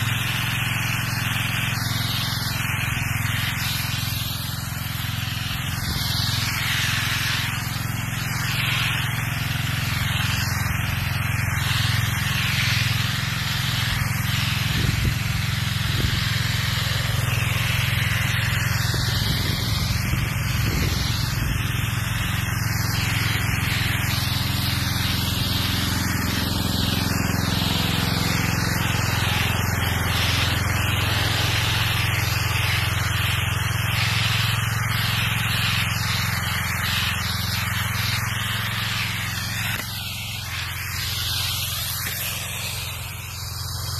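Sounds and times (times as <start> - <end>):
pressure washer water jet hissing: 0.0 - 43.9.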